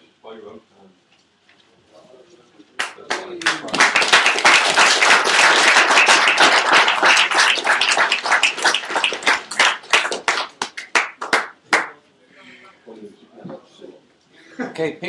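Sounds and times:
audience applauding: 0:02.8 - 0:12.0.

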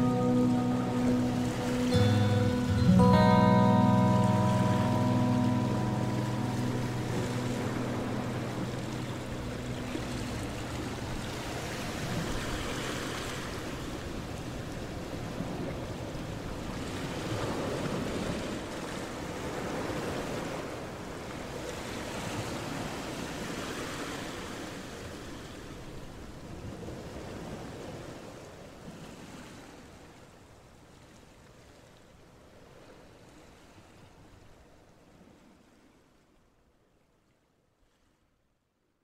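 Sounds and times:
song with guitar: 0:00.0 - 0:12.6.

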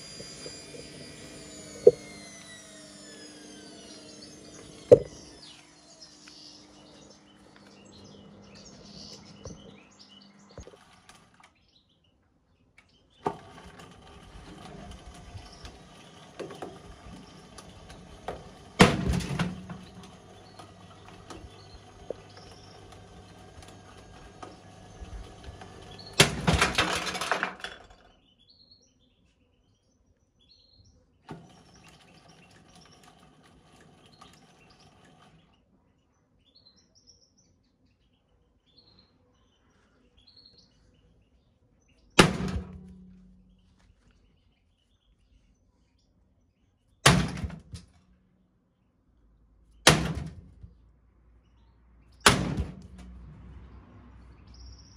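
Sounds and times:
washing machine motor whine: 0:00.0 - 0:11.5, 0:13.2 - 0:28.0, 0:31.3 - 0:35.6
birds chirping faintly: 0:00.0 - 0:52.3.

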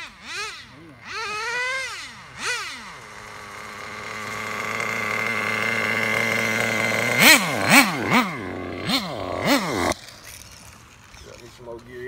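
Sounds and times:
two-stroke engine revving: 0:00.0 - 0:11.4.

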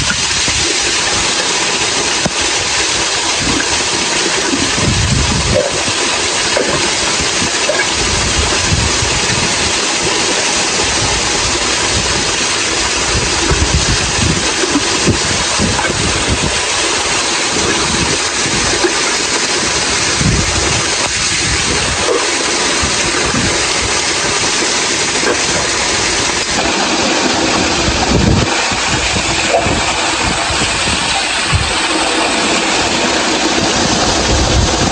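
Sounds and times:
waterfall rushing: 0:00.0 - 0:34.9
low rumbling: 0:02.2 - 0:09.8, 0:19.6 - 0:34.9.

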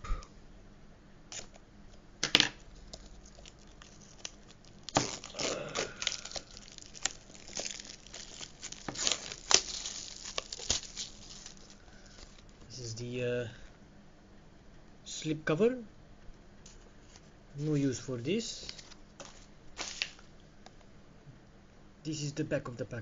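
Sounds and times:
plastic tearing and crinkling: 0:01.3 - 0:01.6, 0:02.5 - 0:12.6, 0:18.7 - 0:20.3
plastic wrap being cut: 0:01.3 - 0:01.6, 0:02.9 - 0:12.4.

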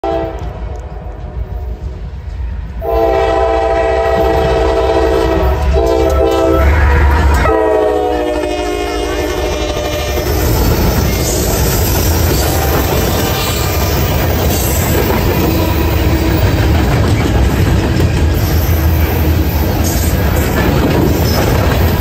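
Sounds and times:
locomotive air horn blasts: 0:00.0 - 0:00.5, 0:02.8 - 0:10.3
locomotive engines rumbling: 0:00.0 - 0:22.0.

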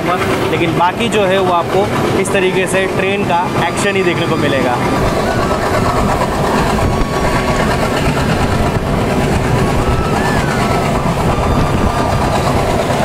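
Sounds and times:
rushing air: 0:00.0 - 0:13.0
train wheels rumbling on rails: 0:00.0 - 0:13.0
faint wavering squeal: 0:03.4 - 0:13.0.

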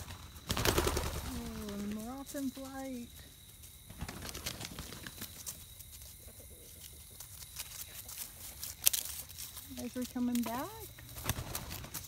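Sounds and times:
footsteps through grass and dry leaves: 0:05.2 - 0:12.0.

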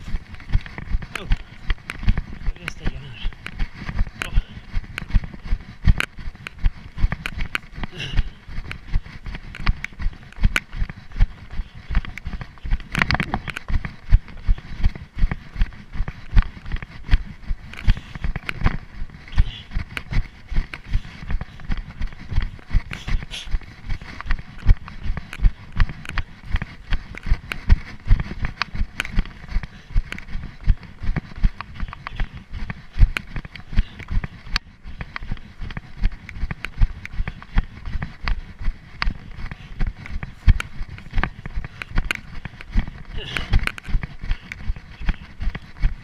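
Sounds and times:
dry stems crackling: 0:00.0 - 0:46.0
running footsteps on dry grass: 0:00.0 - 0:46.0.

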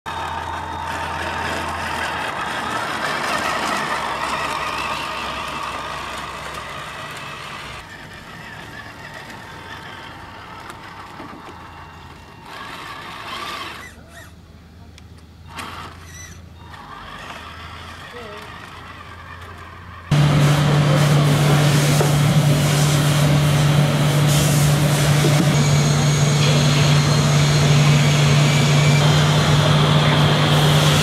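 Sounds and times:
toy truck motor whirring: 0:00.1 - 0:14.5, 0:15.4 - 0:20.2.

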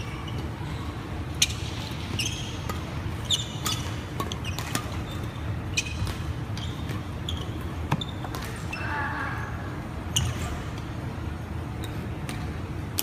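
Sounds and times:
low background noise: 0:00.0 - 0:13.0
rackets hitting shuttlecock: 0:01.4 - 0:08.7.

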